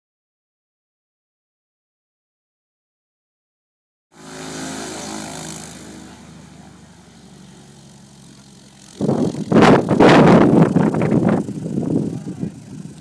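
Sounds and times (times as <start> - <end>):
propeller plane engine: 4.1 - 13.0
wind buffeting microphone: 8.4 - 13.0.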